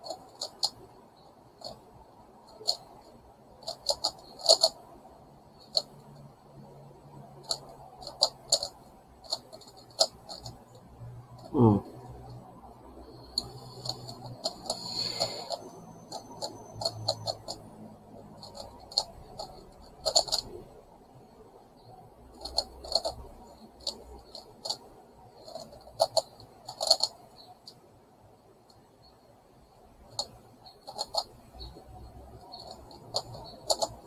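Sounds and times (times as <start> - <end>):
plastic puzzle clicking and clacking: 0.0 - 0.9, 2.5 - 4.8, 7.4 - 11.6, 13.3 - 20.7, 22.3 - 27.8, 30.0 - 34.0.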